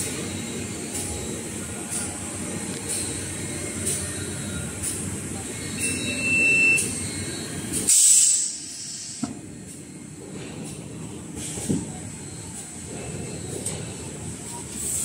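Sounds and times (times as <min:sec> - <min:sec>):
machine running with mechanical din: 0:00.0 - 0:15.0
high beep: 0:05.7 - 0:07.0
compressed air hiss: 0:07.8 - 0:09.3.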